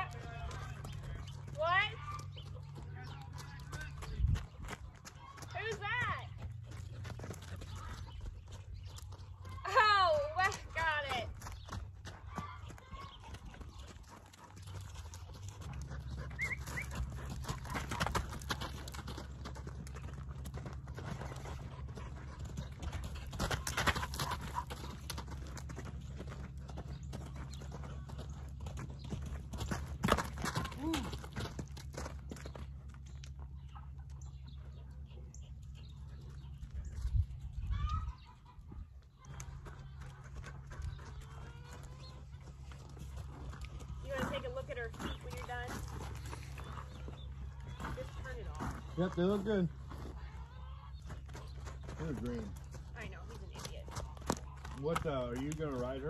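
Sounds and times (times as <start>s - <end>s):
birds chirping: 0.0s - 56.0s
hoofbeats on dirt: 0.0s - 56.0s
dog panting: 13.8s - 18.4s.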